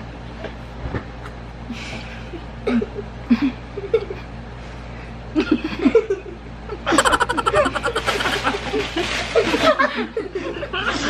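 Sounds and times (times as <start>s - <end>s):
muffled giggles and snickers: 5.4s - 11.0s.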